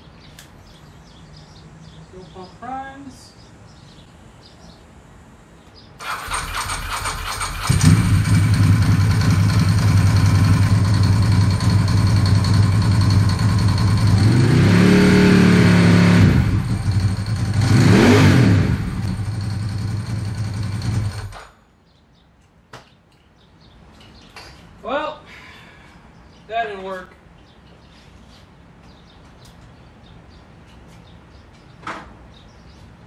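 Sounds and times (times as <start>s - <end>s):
motorcycle starter cranking: 6.0s - 14.2s, 19.0s - 21.5s
motorcycle engine idling and revving: 6.0s - 21.5s.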